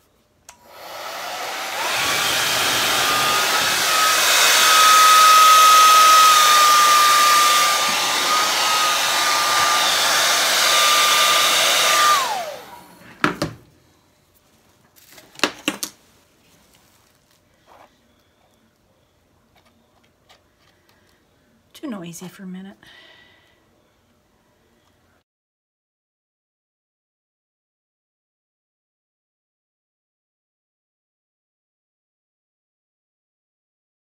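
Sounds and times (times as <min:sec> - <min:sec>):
hair dryer whine: 0:00.5 - 0:13.6.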